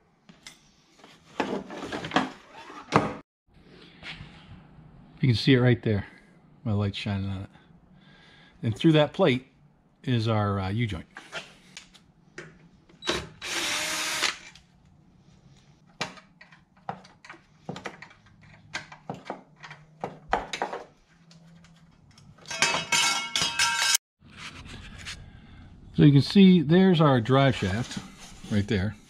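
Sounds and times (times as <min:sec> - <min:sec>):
power tool bursts: 0:13.0 - 0:14.6.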